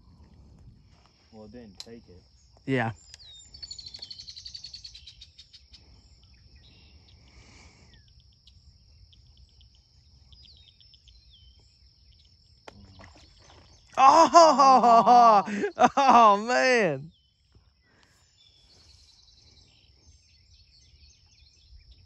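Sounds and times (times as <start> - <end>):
high-pitched insect trill: 0.8 - 22.0
birds chirping: 1.2 - 22.0
man's voice: 14.0 - 17.1.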